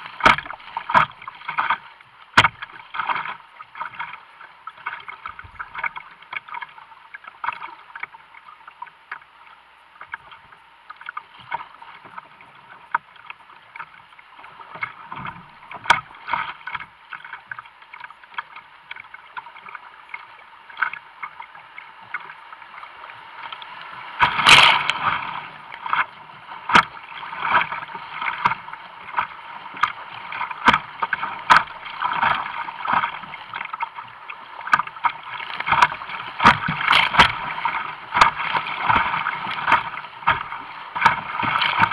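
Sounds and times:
water rushing against a kayak hull: 0.0s - 41.9s
loud splash: 24.2s - 26.0s
short sharp splashes: 24.2s - 26.0s.

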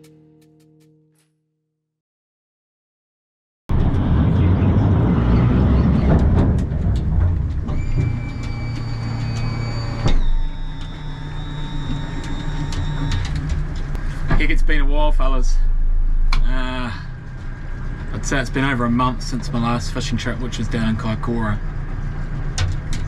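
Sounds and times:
high whine: 3.7s - 22.3s
knocks and clicks: 5.9s - 11.2s.

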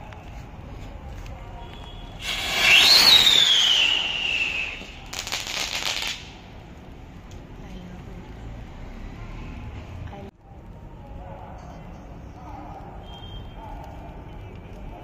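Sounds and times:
dense firework crackling: 0.2s - 8.4s, 12.3s - 15.0s
whistling rocket taking off: 2.2s - 5.1s.

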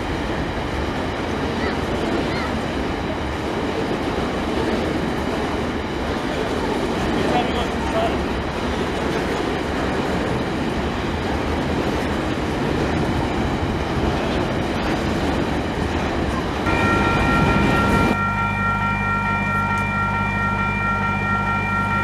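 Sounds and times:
train wheels rumbling on rails: 0.0s - 22.0s
train horn chord: 16.7s - 22.0s.

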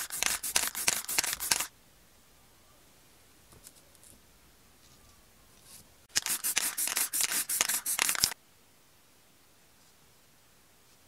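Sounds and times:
spray-paint can hissing bursts: 0.0s - 1.7s, 6.1s - 8.4s.

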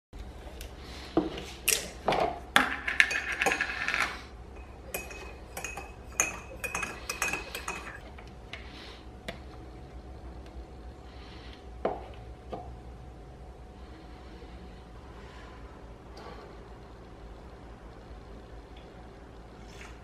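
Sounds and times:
teaspoon clinking in ceramic mug: 4.6s - 8.0s.

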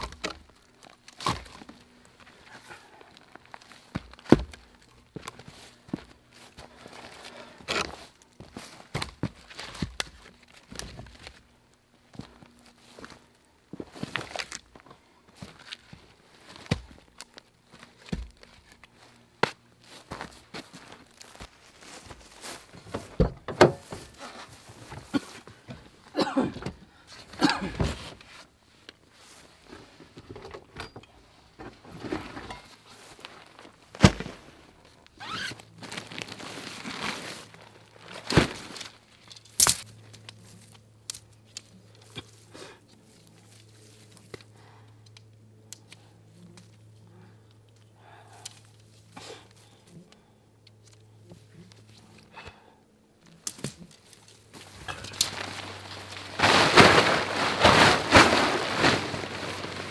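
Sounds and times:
rustling and rummaging: 0.0s - 44.6s, 53.3s - 59.9s
footsteps: 17.7s - 26.0s, 54.0s - 59.9s.

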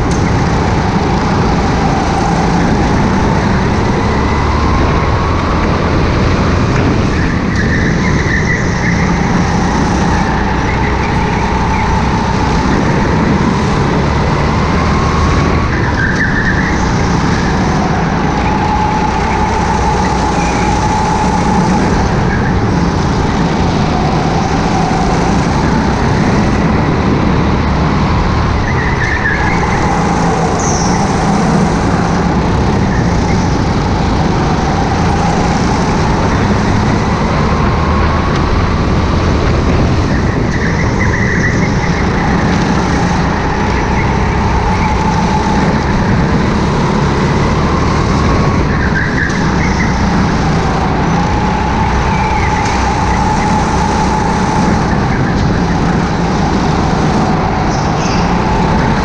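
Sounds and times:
go-kart engine whine: 0.0s - 59.0s
tyre squeals: 6.9s - 27.0s, 27.9s - 38.5s.

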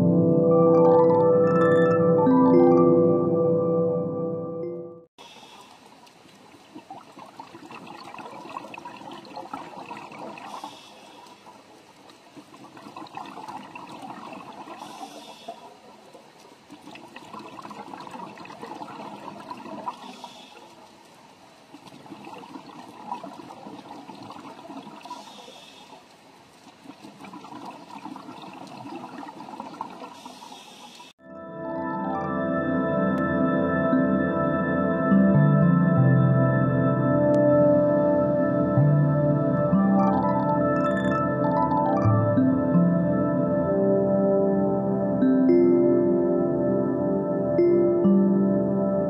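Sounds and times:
underwater bubbling and trickling: 5.2s - 31.1s, 36.4s - 45.5s.

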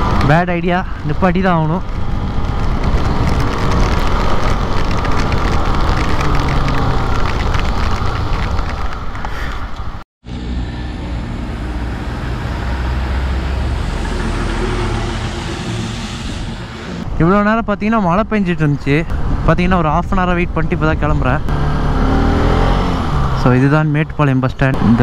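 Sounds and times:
rain ticking on microphone: 0.0s - 10.0s
truck passing rumble: 0.9s - 17.3s.

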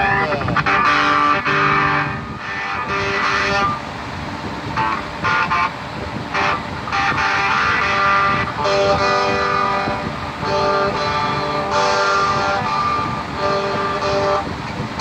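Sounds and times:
electric guitar chords: 0.0s - 15.0s.

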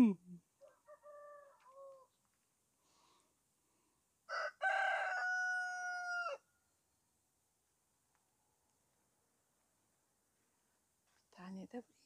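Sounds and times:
rooster crowing: 0.6s - 2.2s, 4.3s - 6.5s.

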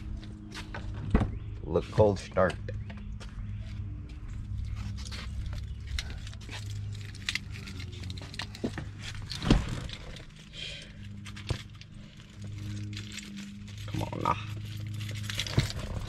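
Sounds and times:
low hum: 0.0s - 16.0s
keys jangling: 5.3s - 10.4s, 11.0s - 16.0s.

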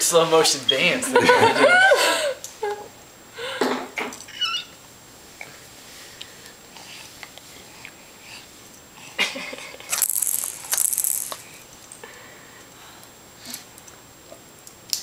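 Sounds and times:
rattling bursts: 9.9s - 11.4s.

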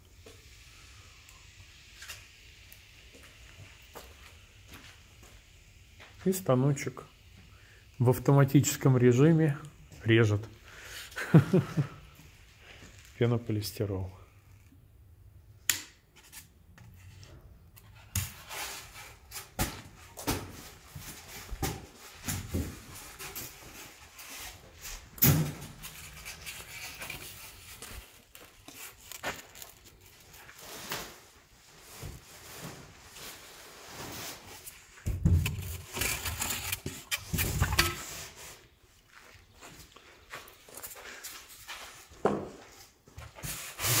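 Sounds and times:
foam boards rubbing and scraping: 30.5s - 38.7s, 43.4s - 44.0s.

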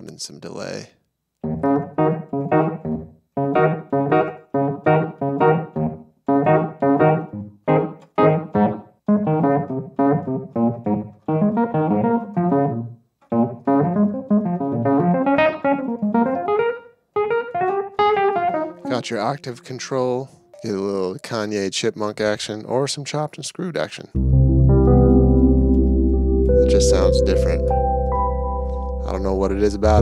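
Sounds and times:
staccato electric piano chords: 1.4s - 19.1s, 24.2s - 30.0s.

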